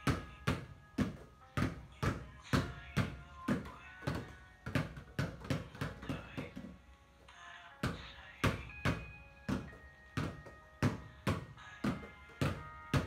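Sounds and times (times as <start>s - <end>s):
basketballs bouncing on tiled floor: 0.0s - 6.8s, 7.8s - 13.0s.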